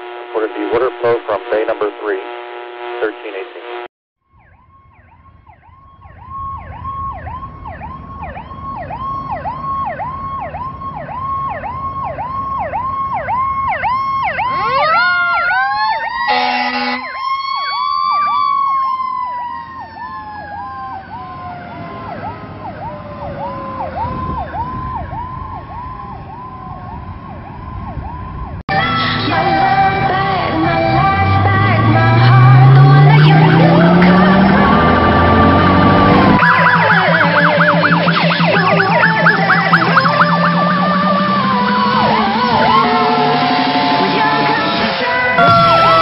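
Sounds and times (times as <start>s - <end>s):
air horn blast: 0.0s - 3.9s, 16.3s - 17.2s, 42.1s - 46.0s
electronic siren yelping: 0.0s - 28.6s, 31.0s - 46.0s
wailing siren: 0.0s - 46.0s
diesel engine rumble: 19.7s - 46.0s.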